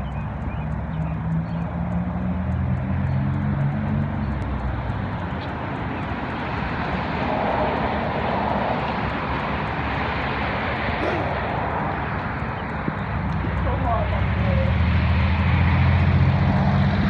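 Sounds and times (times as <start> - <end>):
cars passing on a road: 0.0 - 17.0.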